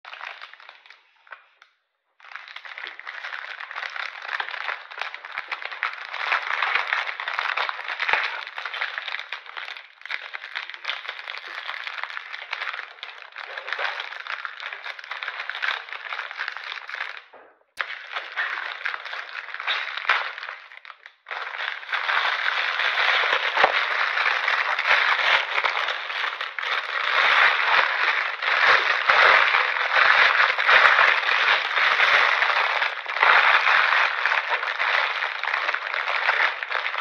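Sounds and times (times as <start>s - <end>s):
plastic wrapper crinkling: 0.1s - 1.6s, 2.2s - 37.0s.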